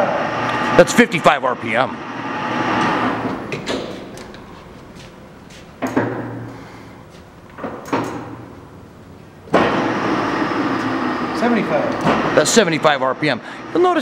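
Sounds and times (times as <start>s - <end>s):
lathe spindle running: 0.0s - 3.6s, 9.6s - 14.0s.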